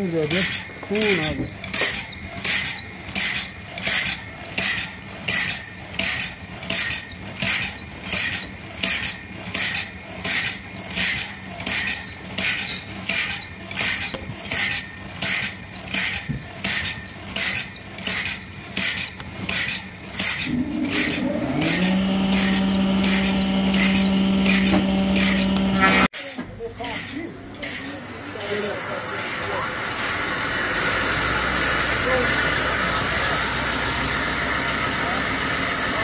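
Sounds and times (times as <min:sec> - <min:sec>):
sawmill machine hissing strokes: 0:20.2 - 0:26.1, 0:28.0 - 0:36.0.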